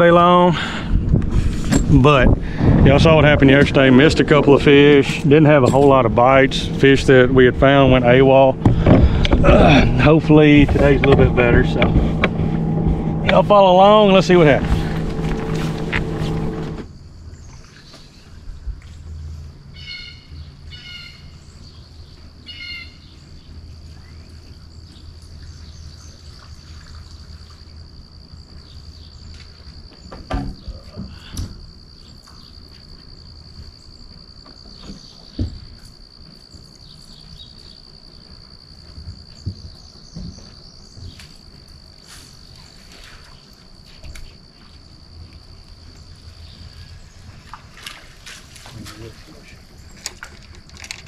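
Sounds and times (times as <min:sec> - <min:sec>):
low hum: 0:00.0 - 0:17.2
sharp knocks: 0:05.6 - 0:16.9
bird calls: 0:19.8 - 0:27.2.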